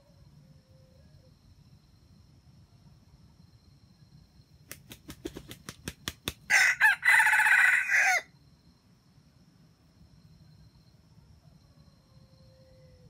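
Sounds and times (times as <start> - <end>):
sharp claps: 4.7 - 6.5
rooster crowing: 6.5 - 8.3.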